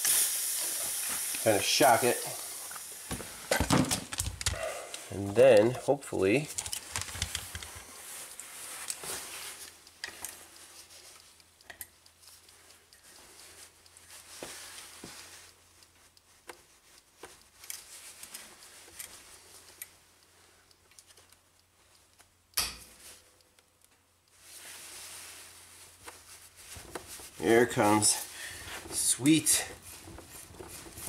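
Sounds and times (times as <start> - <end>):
metal clicks and scrapes: 4.1 - 14.0.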